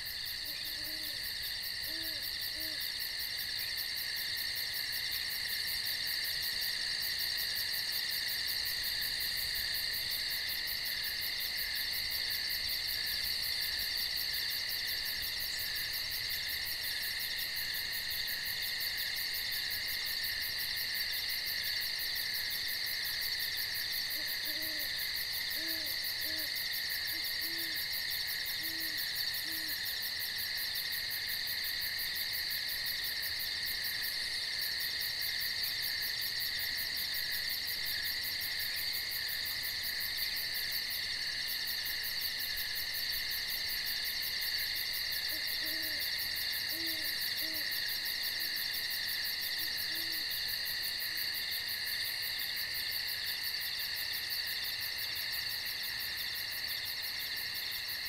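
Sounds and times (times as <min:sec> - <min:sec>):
night insects chorus: 0:00.0 - 0:58.0
owl hooting: 0:00.4 - 0:01.2, 0:01.8 - 0:02.8, 0:24.2 - 0:24.9, 0:25.6 - 0:26.5, 0:27.1 - 0:27.8, 0:28.6 - 0:29.8, 0:45.3 - 0:46.1, 0:46.7 - 0:47.8, 0:49.6 - 0:50.2.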